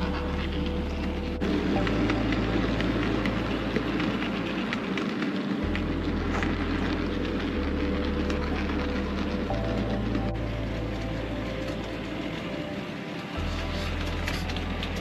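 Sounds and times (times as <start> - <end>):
model train wheels rattling: 0.0 - 15.0.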